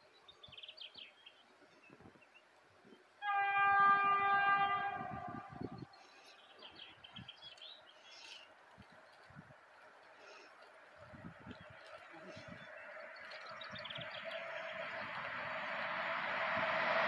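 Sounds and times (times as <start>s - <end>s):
locomotive horn blast: 3.2s - 6.0s.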